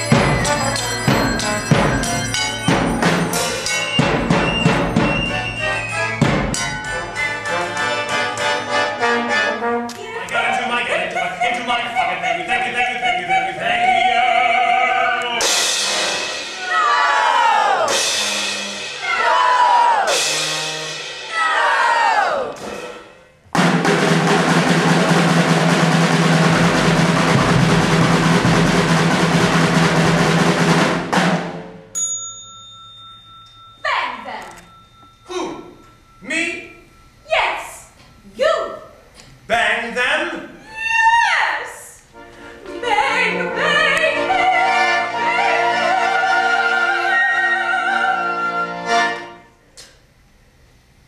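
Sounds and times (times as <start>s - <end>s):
bell struck and ringing: 0.0s - 5.6s, 6.2s - 7.7s, 31.9s - 38.3s
loud drum roll: 0.0s - 7.6s, 15.4s - 31.9s
sustained accompaniment chord: 0.0s - 9.8s
operatic singing: 6.9s - 16.0s, 42.6s - 49.2s.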